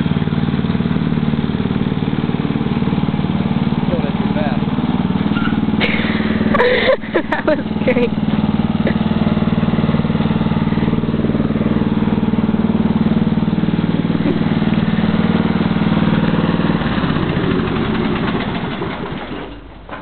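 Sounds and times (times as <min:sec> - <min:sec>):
lawn mower engine running: 0:00.0 - 0:20.0.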